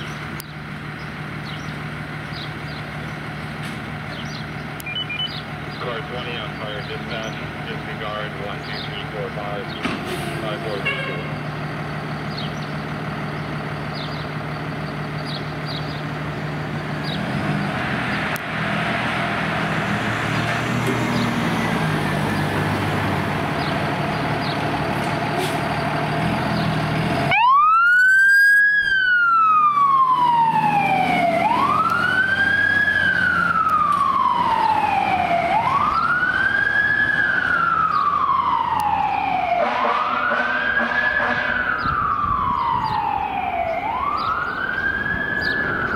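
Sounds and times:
fire engine running: 0.0 - 45.9
siren wailing: 27.2 - 45.9.

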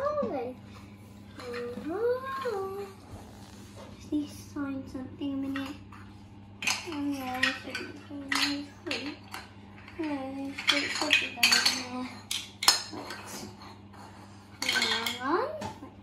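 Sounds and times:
child's wordless voice: 0.0 - 0.6, 1.4 - 3.1, 4.0 - 5.8, 10.0 - 12.2, 14.8 - 15.9
plastic toys clattering on tiles: 6.6 - 13.8, 14.5 - 15.8.

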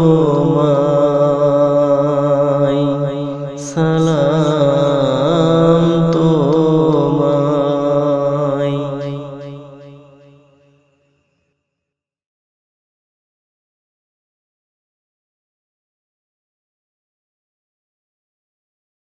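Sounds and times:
low drone: 0.0 - 9.9
wordless wavering vocal melody: 0.0 - 10.7.

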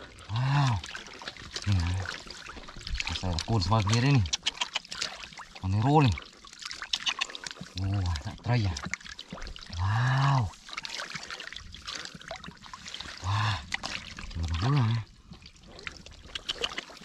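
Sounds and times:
water splashing and trickling: 0.0 - 17.0.

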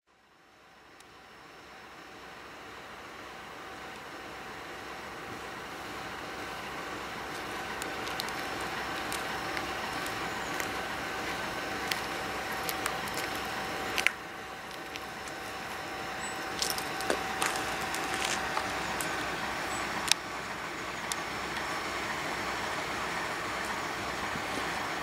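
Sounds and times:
distant train rumble: 0.7 - 25.0
train whine: 1.2 - 25.0
sharp clicks: 7.3 - 20.2.

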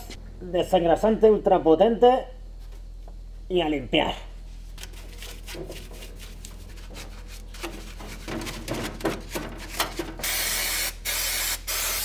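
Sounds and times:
stiff brush scrubbing metal: 4.8 - 10.4
loud steady spray hiss: 10.2 - 12.0.

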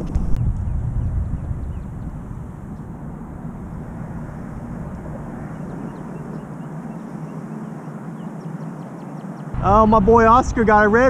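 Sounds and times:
wind noise on microphone: 0.0 - 7.8.

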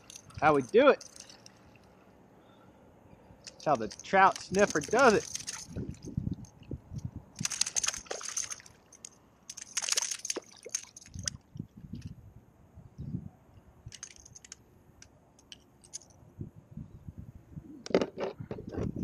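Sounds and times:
faint scattered clicks: 3.4 - 12.1, 13.9 - 16.2
fish splashing and thrashing in water: 3.8 - 6.1, 7.4 - 8.9, 9.5 - 11.4.

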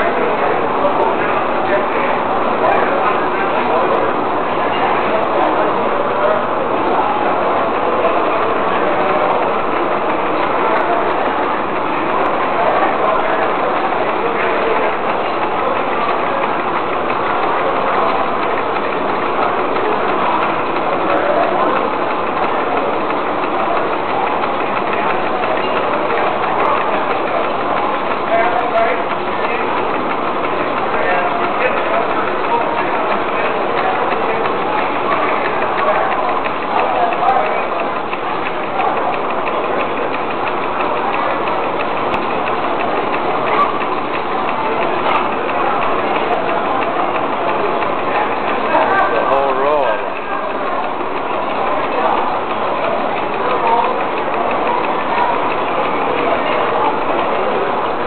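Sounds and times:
model engines clattering: 0.0 - 58.0.

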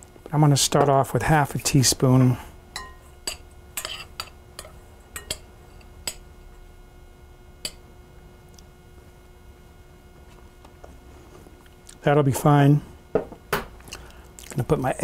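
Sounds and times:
spoon clinking against glass bowl: 2.8 - 6.2.

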